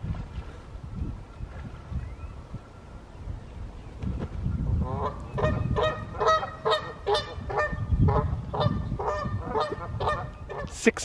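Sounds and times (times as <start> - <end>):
geese honking: 4.8 - 10.7.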